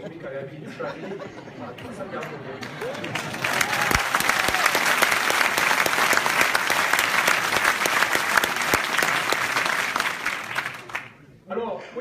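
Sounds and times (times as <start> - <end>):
audience applauding: 1.8 - 11.3.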